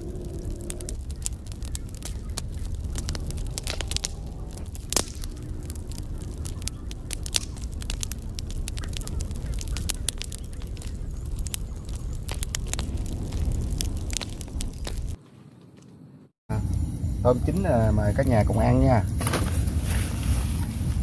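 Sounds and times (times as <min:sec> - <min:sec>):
campfire crackling and popping: 0:00.0 - 0:15.2
fire low rumble: 0:00.0 - 0:15.2, 0:16.5 - 0:21.0.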